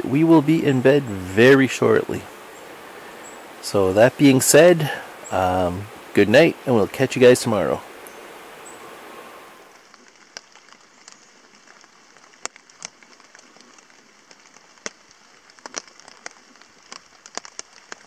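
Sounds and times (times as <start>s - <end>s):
raindrops tapping on a tarp: 9.7s - 18.0s.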